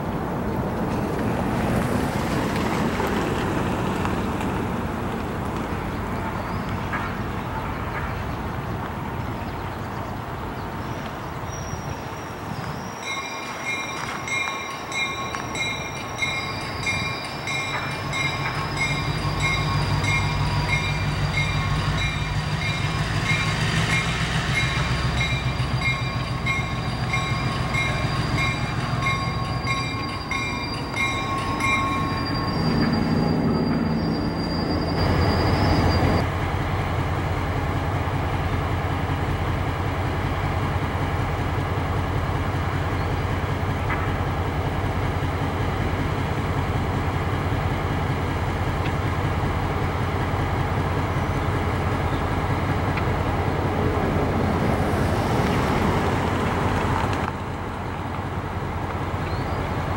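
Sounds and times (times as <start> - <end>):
locomotive engine rumble: 0.0 - 59.9
locomotive bell ringing: 12.8 - 36.2.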